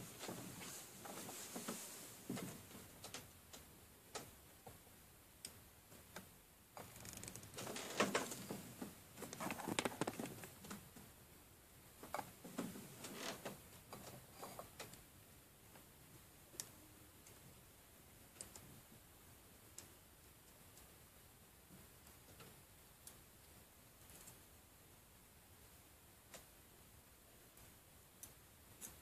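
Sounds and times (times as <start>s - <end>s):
handling and scraping noise: 0.0s - 2.9s, 6.8s - 10.9s.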